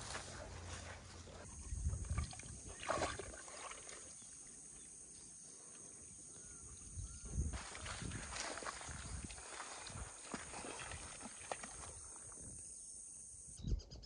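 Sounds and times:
splashing steps in muddy water: 1.9s - 4.5s, 7.5s - 12.4s.

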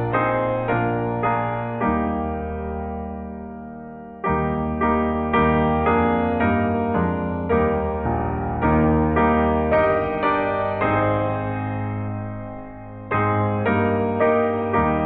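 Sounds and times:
piano playing hymn chords: 0.0s - 15.0s.

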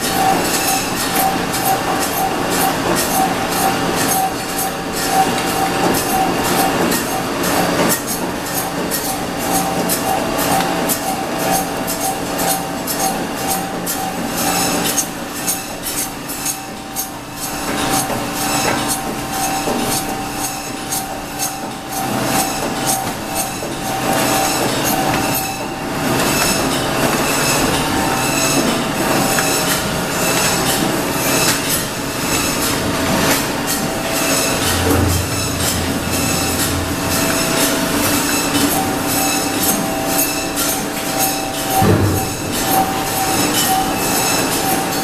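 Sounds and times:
machinery mechanical din: 21.4s - 45.0s.

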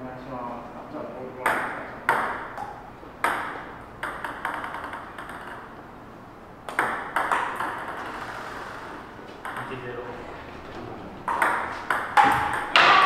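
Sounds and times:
table tennis ball hits: 1.4s - 5.9s, 6.6s - 8.2s, 9.4s - 9.9s, 11.2s - 13.0s.

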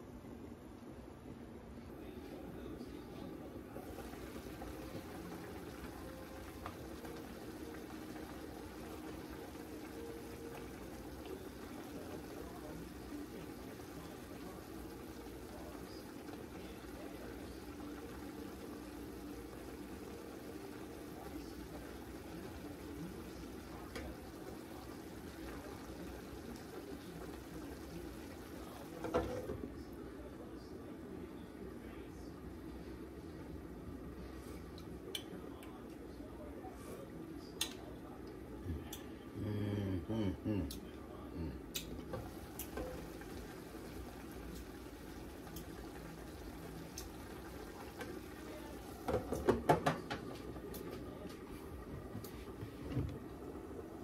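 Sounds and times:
sauce bubbling in skillet: 3.8s - 29.5s, 41.8s - 51.1s.

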